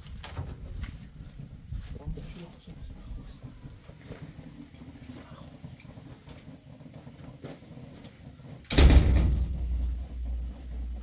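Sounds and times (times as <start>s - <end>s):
door banging open: 8.7s - 10.4s
loud low rumble: 8.7s - 11.0s.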